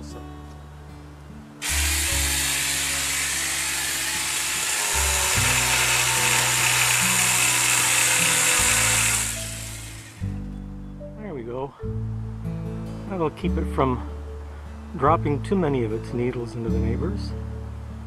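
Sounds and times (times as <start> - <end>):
guitar music: 0.0 - 18.0
power saw cutting branches: 1.6 - 10.3.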